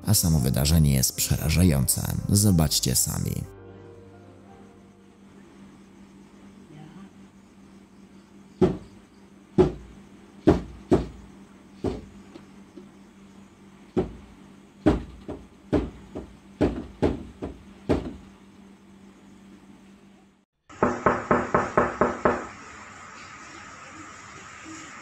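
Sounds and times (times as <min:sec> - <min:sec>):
faint steady hum: 0:00.0 - 0:20.5
loud heavy knocking: 0:08.6 - 0:08.9, 0:09.6 - 0:11.2, 0:11.8 - 0:12.2, 0:14.0 - 0:14.2, 0:14.8 - 0:18.2, 0:20.8 - 0:22.5.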